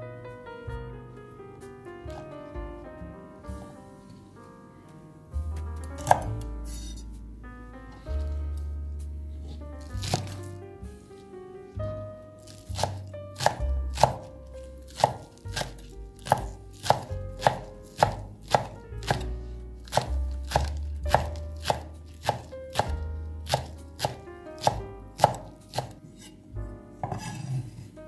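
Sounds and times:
knife chopping on wooden board: 5.9 - 7.0, 9.9 - 10.5, 12.5 - 26.3, 27.0 - 27.6.

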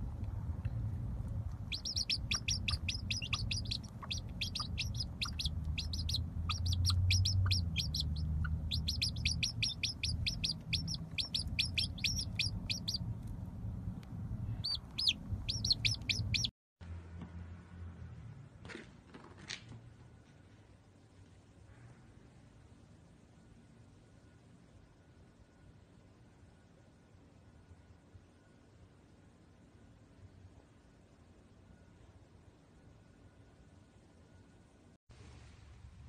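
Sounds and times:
low steady rumble: 0.0 - 18.6, 35.1 - 36.0
chicks peeping: 1.5 - 13.1, 14.5 - 16.5.

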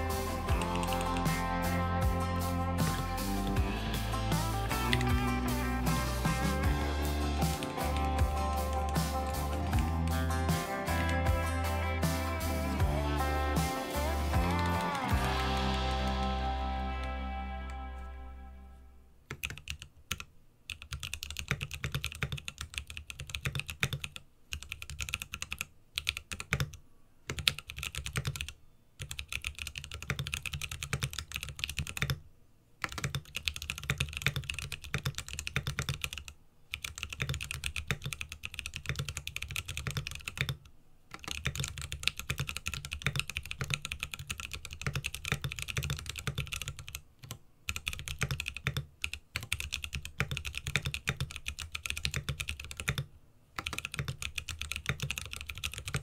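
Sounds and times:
fast mechanical keyboard typing: 19.3 - 32.2, 32.8 - 56.0.

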